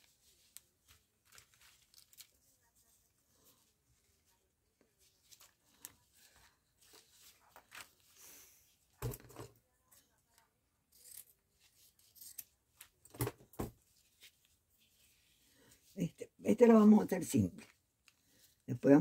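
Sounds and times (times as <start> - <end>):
ribbon rustling and clicking: 0.0 - 8.2.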